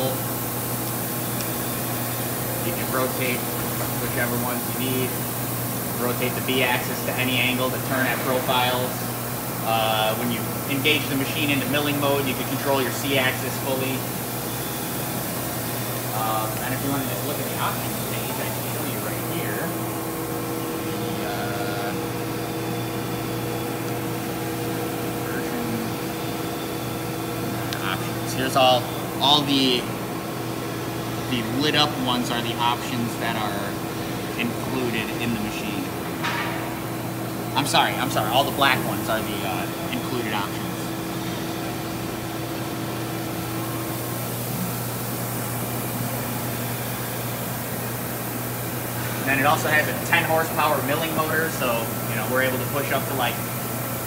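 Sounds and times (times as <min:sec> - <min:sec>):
machine humming: 0:00.0 - 0:54.0
higher machine tone: 0:10.2 - 0:30.0.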